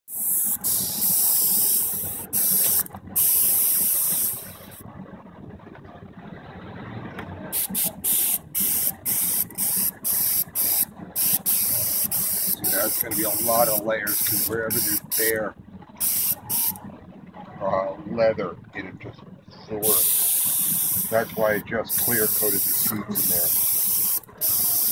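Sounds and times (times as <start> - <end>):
spray gun hissing: 0.1 - 4.8, 7.6 - 15.4, 16.0 - 16.8, 19.8 - 24.9.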